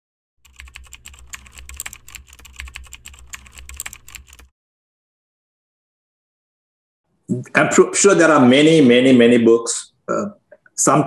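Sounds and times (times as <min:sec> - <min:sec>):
keyboard typing clicks: 0:00.5 - 0:04.5.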